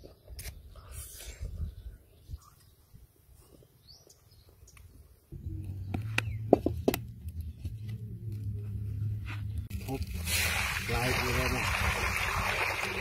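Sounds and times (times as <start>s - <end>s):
steady low rumble: 5.3s - 10.8s.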